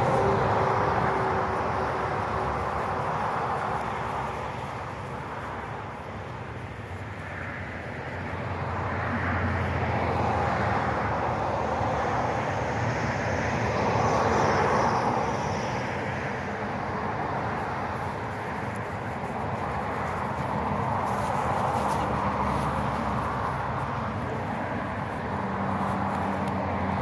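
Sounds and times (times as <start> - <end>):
distant engine passing: 0.0 - 5.2.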